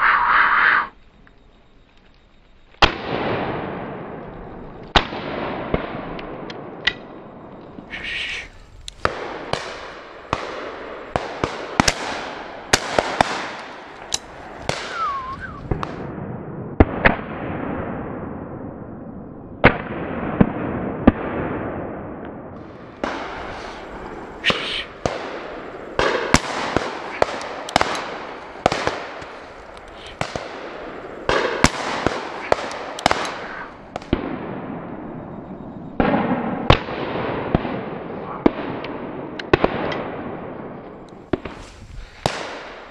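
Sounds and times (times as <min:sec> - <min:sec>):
shotguns firing with echo: 0:09.0 - 0:16.2, 0:22.6 - 0:35.1, 0:36.0 - 0:41.6, 0:42.2 - 0:42.9.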